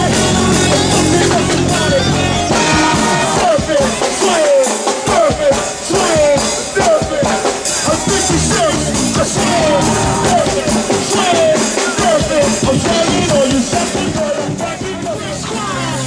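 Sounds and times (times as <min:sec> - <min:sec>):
fast dense drums: 0:00.0 - 0:16.0
live band playing bounce beat: 0:00.0 - 0:16.0
vocals: 0:00.0 - 0:16.0.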